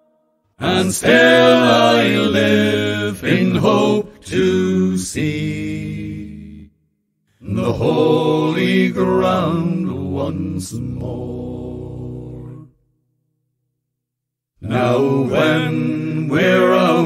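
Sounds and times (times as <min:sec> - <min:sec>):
men singing slow song: 0:00.6 - 0:06.6, 0:14.6 - 0:17.0.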